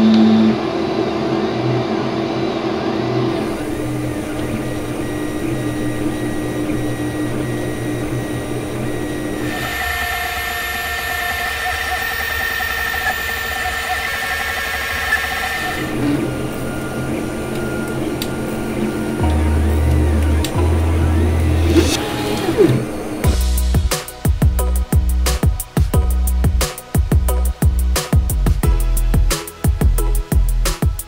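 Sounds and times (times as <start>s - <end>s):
stepper motors whining: 0.0s - 24.2s
deep low hum: 15.8s - 25.4s.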